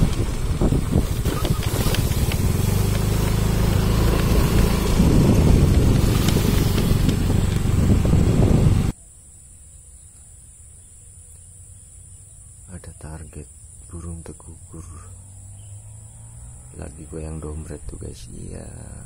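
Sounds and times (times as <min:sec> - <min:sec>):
motorcycle engine running: 0:00.0 - 0:08.9.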